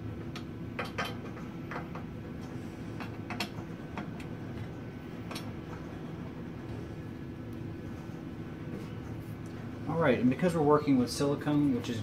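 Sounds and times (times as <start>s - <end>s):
steady low hum: 0.0s - 12.0s
hands clicking and tapping parts: 0.3s - 5.5s.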